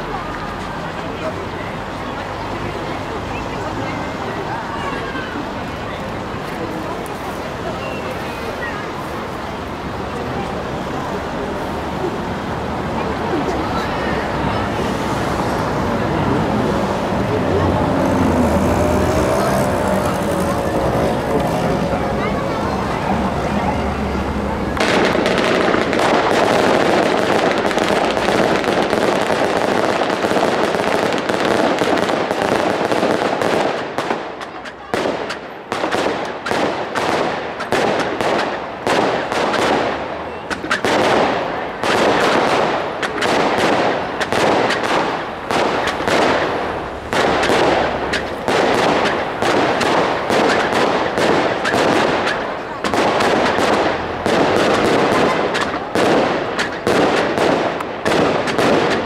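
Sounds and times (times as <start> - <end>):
fireworks crackling and hissing: 3.6 - 59.0
fireworks bangs: 23.7 - 59.0.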